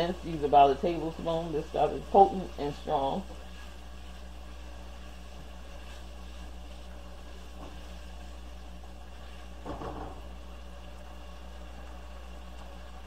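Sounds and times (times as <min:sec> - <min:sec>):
steady low hum: 0:00.0 - 0:13.0
spatula scraping vegetables in pot: 0:02.7 - 0:08.5.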